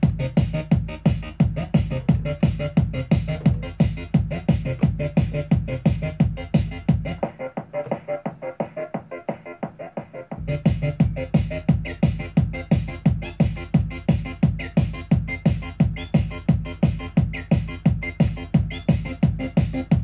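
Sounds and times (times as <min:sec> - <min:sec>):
techno kick drum and hi-hats: 0:00.0 - 0:20.0.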